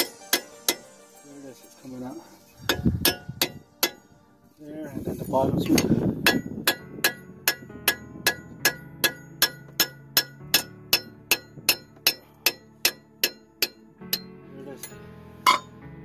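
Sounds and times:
hammer striking steel bolt: 0.0 - 0.9, 2.7 - 4.1, 5.7 - 15.7.

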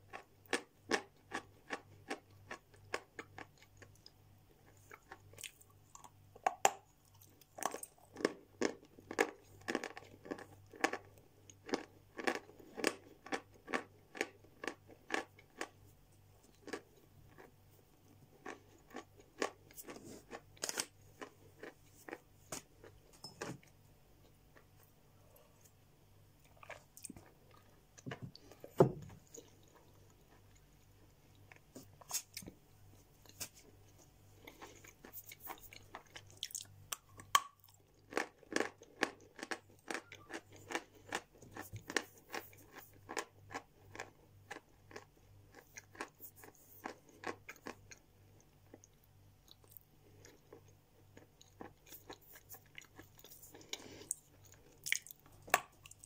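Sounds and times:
chewing crunchy chalk: 34.4 - 48.0.

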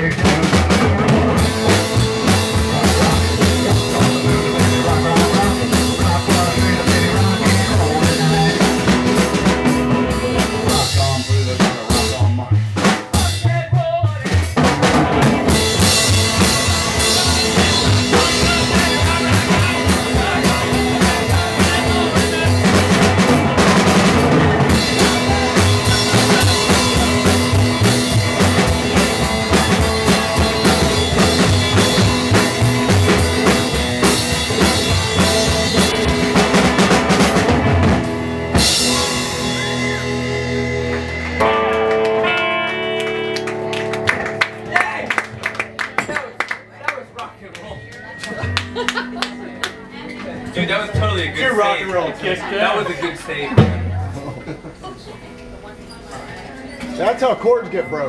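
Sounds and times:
bass drum and snare beat: 0.0 - 41.4
live band playing loudly: 0.0 - 51.8, 53.0 - 55.5.

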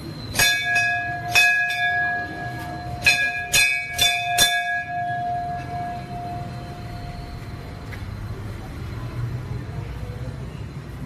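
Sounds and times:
temple bell ringing: 0.0 - 7.9.

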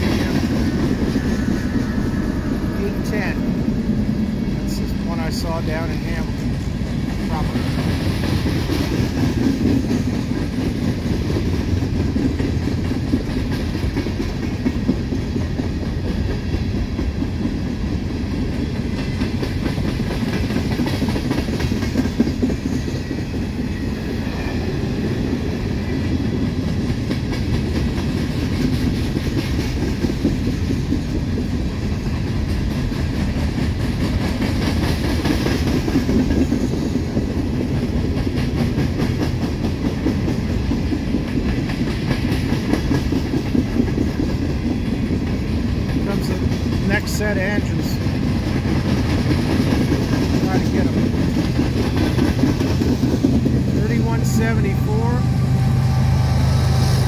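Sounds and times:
steel wheels rumbling on rail: 0.0 - 57.0
wheels clicking over rail joints: 6.6 - 23.4, 26.2 - 47.2, 47.8 - 53.9.

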